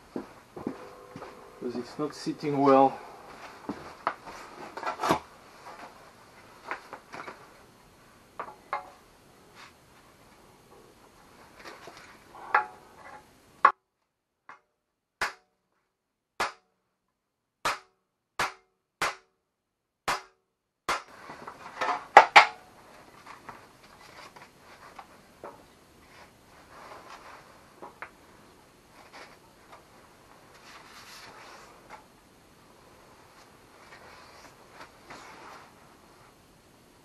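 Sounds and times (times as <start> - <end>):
rustling and handling of parts: 0.0 - 13.6, 21.1 - 36.6.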